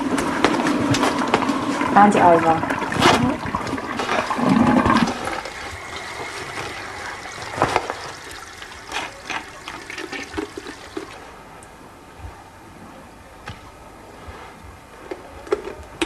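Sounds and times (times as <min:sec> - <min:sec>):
toilet flushing: 0:00.0 - 0:11.3.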